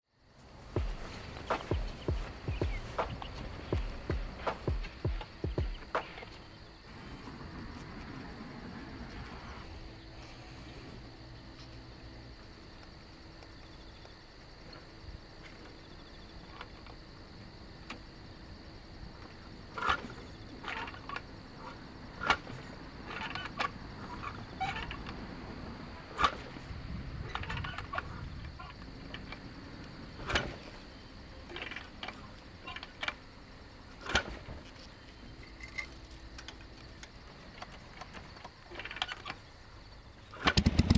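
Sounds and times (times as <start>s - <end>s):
insects droning: 0.0s - 40.9s
motorcycle kick starter clunk: 40.3s - 40.9s.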